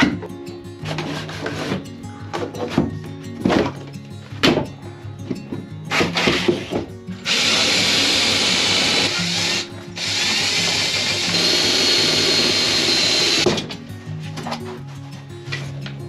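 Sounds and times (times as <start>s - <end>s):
background music: 0.0s - 16.0s
handheld power tool running: 5.9s - 13.5s.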